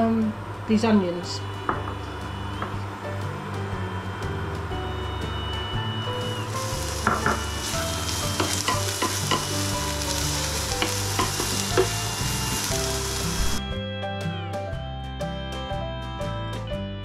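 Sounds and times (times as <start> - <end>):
onions sizzling in frying pan: 5.9 - 13.6.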